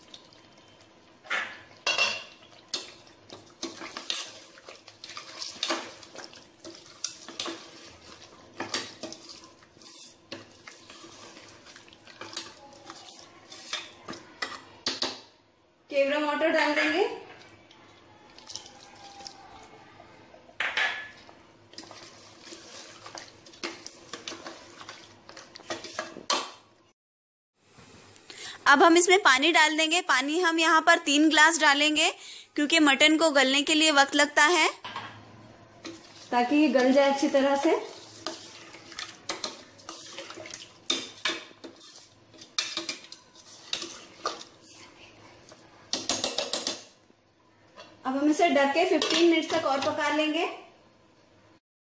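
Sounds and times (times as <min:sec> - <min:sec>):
ladle clinking and scraping pot: 0:01.2 - 0:15.2, 0:20.6 - 0:26.3, 0:35.8 - 0:44.6, 0:45.9 - 0:47.0
metal ladle stirring in pot: 0:01.6 - 0:15.1, 0:21.1 - 0:26.2, 0:35.8 - 0:47.0.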